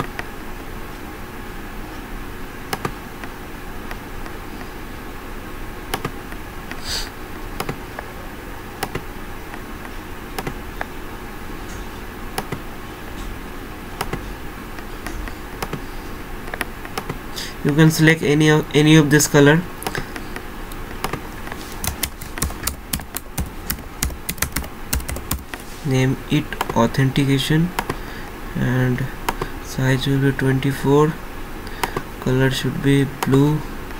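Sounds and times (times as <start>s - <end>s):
background hiss and hum: 0.0s - 33.9s
computer mouse clicks: 5.9s - 6.2s, 8.8s - 9.0s, 14.0s - 14.2s, 15.0s - 15.8s, 19.8s - 25.6s.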